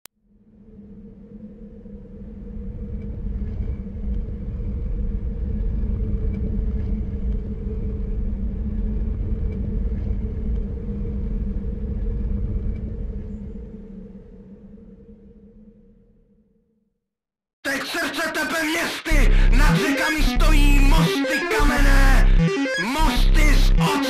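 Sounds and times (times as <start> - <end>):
deep rumbling drone: 0.2 - 16.6.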